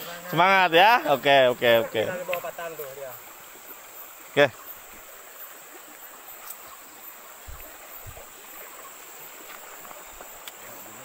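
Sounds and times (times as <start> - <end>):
river running over rocks: 0.0 - 11.0.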